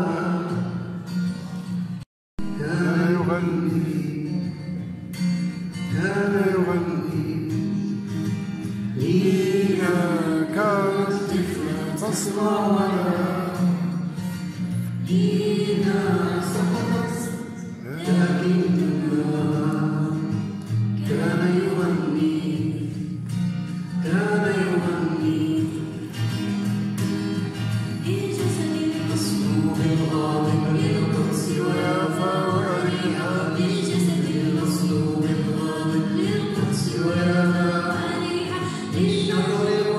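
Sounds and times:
acoustic guitar: 0.0s - 39.9s
girl singing into a microphone: 15.0s - 17.8s, 27.9s - 29.8s, 30.4s - 39.9s.

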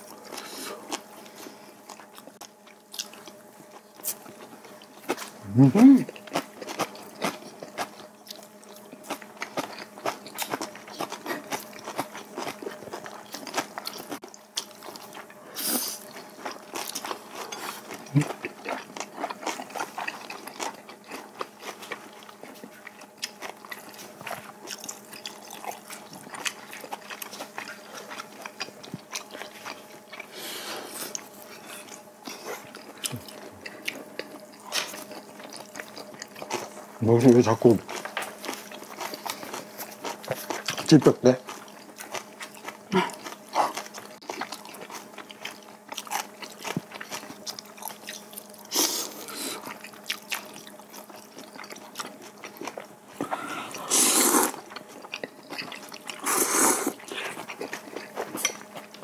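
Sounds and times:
faint steady hum: 0.0s - 59.0s
people chewing and crunching: 0.0s - 59.0s
slurping noodles: 53.2s - 54.6s, 56.2s - 57.4s.

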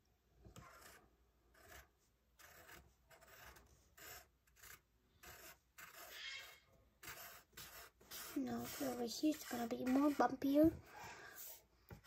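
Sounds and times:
pencil scratching on paper: 0.5s - 12.0s.

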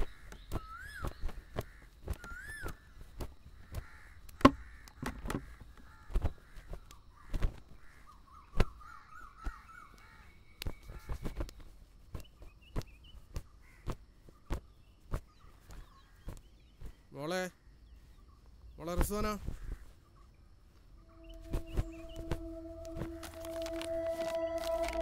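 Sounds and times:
small bird chirps: 0.0s - 4.1s
crows cawing: 0.2s - 2.9s, 3.6s - 10.4s, 13.6s - 13.9s
bird warbling: 21.0s - 25.0s.

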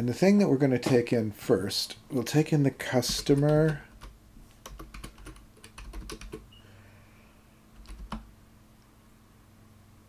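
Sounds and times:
computer keyboard typing: 3.1s - 6.4s, 7.8s - 8.3s.

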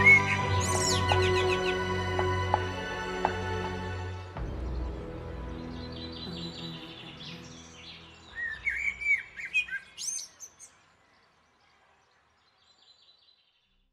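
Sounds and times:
bird chirping: 0.0s - 2.6s, 4.5s - 13.9s
background music: 0.0s - 9.8s.

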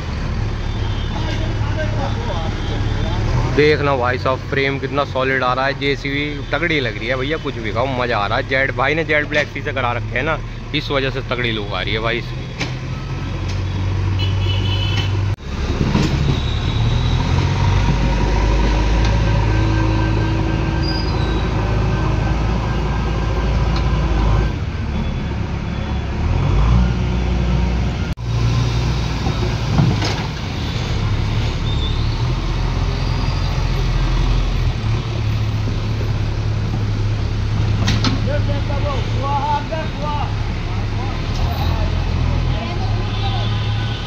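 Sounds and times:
diesel engine droning: 15.2s - 44.0s.

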